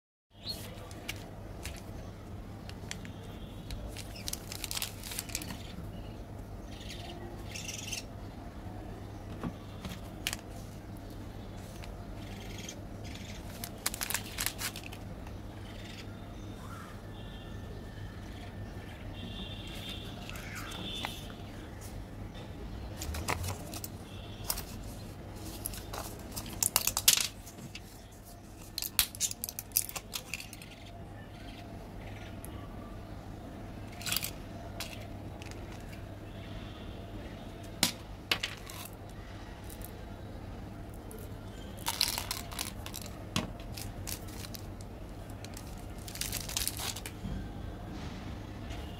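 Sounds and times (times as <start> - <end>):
blister pack crinkling and clicking: 2.7 - 5.7, 13.4 - 15.2, 25.4 - 27.4, 28.6 - 30.7, 41.8 - 47.2
candies clicking into plastic tube: 41.8 - 44.8.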